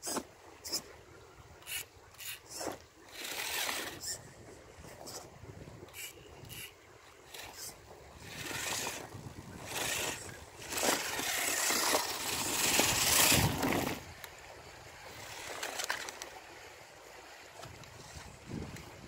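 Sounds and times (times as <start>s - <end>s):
rc car crunching over gravel: 2.2s - 4.2s, 7.3s - 14.2s, 15.1s - 16.4s.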